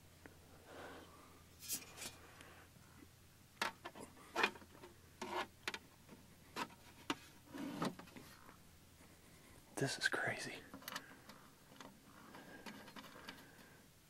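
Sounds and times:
faint rustling: 0:03.7 - 0:13.9.

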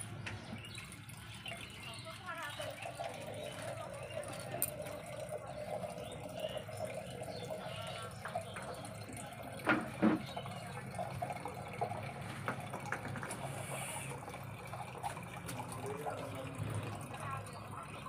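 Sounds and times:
water stream filling a pot: 0:00.0 - 0:18.0.

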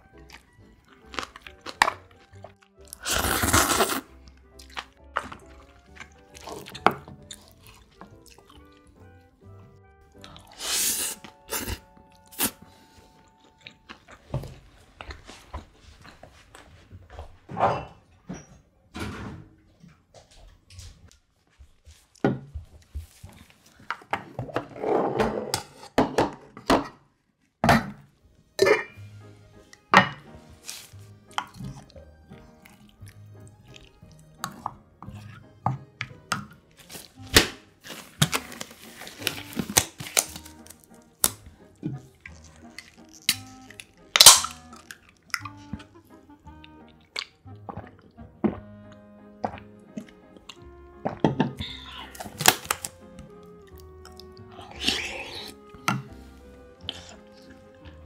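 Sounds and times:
plastic glove pulled off: 0:30.6 - 0:31.2, 0:36.8 - 0:41.0.

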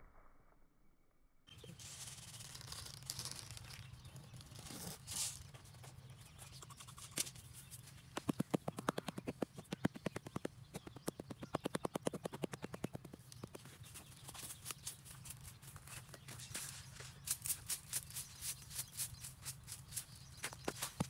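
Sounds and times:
hands rustling dry soil: 0:01.5 - 0:21.0
fast even run of clicks: 0:08.0 - 0:16.3.

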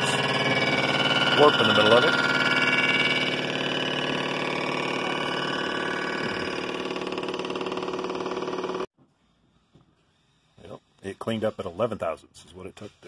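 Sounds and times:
surfacing machine hum and whine: 0:00.0 - 0:08.9.

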